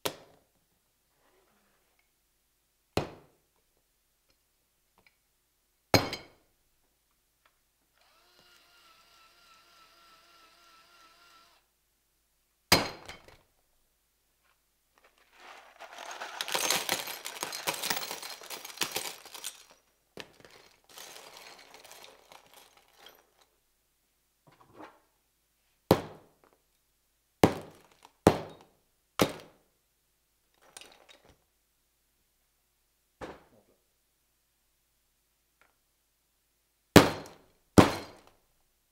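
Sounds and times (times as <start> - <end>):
electric drill whirring: 8.0 - 11.7
nails and sockets clattering: 15.2 - 23.5
hand tools clanking down: 15.8 - 19.8.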